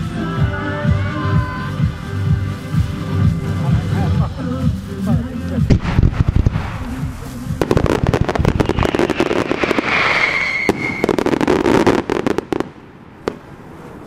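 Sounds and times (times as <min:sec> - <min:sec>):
fireworks bangs and crackling: 0:00.0 - 0:14.0
high firework whistle: 0:06.9 - 0:12.4.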